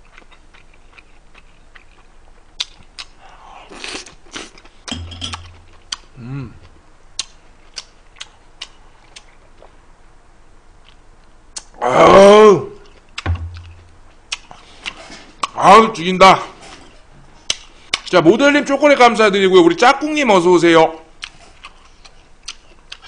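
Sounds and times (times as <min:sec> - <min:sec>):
chewing and mouth noises: 0:00.0 - 0:09.8, 0:12.8 - 0:15.6, 0:21.2 - 0:23.0
person humming: 0:06.2 - 0:06.6.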